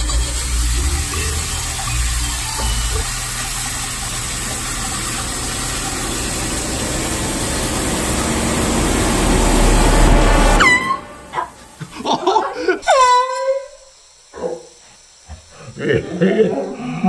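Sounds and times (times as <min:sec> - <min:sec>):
loud rushing hiss: 0:00.0 - 0:12.8.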